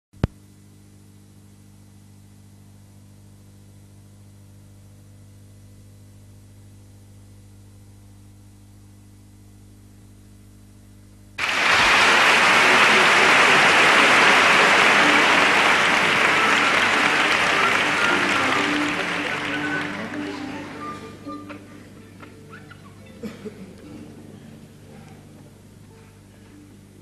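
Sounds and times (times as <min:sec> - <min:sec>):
audience applause: 0:11.4 - 0:21.0.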